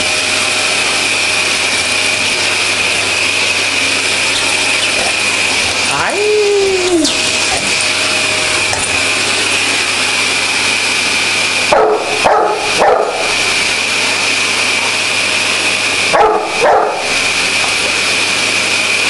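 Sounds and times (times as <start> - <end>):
vacuum cleaner whining: 0.0 - 19.0
dog barking: 11.7 - 13.3, 16.1 - 17.1.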